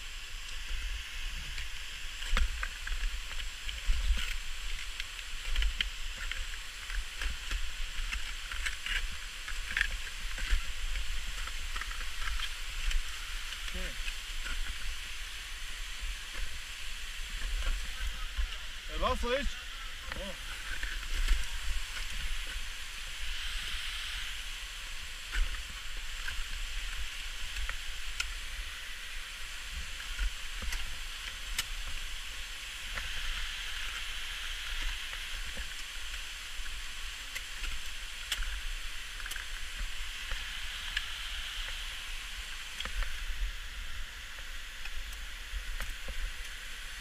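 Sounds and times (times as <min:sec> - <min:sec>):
steady hiss: 0:00.0 - 0:47.0.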